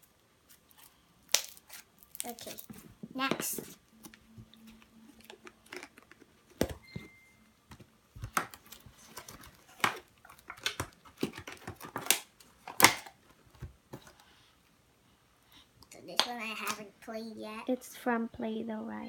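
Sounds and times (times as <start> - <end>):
plastic tubs clicking and tapping: 7.7 - 14.1
packaging rustling: 8.2 - 14.1.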